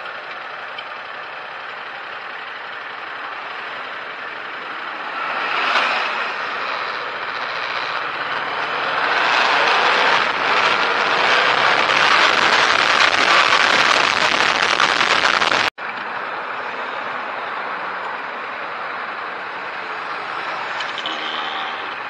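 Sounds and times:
vehicle road noise: 0.0 - 22.0
rushing wind: 4.8 - 17.4.

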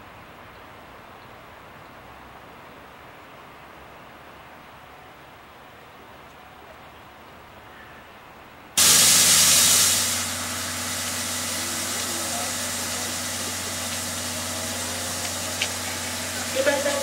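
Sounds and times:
steam hissing: 8.8 - 17.0.

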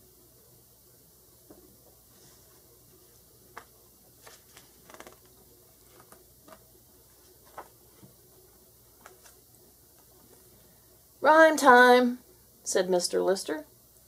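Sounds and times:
paper page rustles: 3.5 - 8.2, 8.9 - 9.4.

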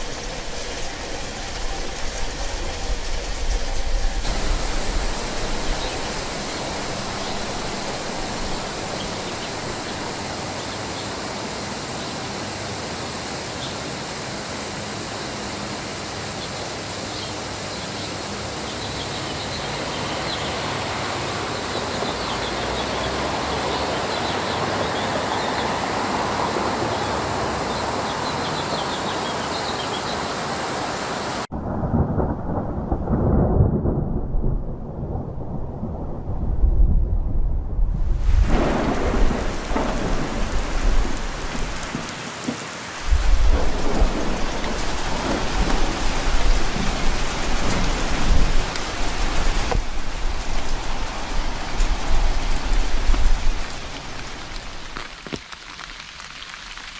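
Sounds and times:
thunder rumbling: 0.0 - 11.8, 31.5 - 55.2
rain hissing: 0.0 - 32.3, 38.0 - 56.9.

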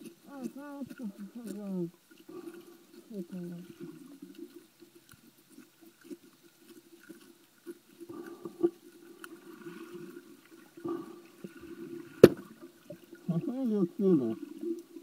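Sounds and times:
muffled underwater bubbling: 8.0 - 15.0.

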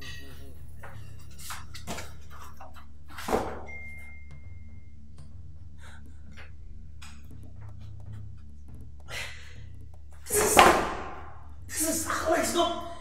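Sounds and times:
sharp loud bang: 10.3 - 11.3.

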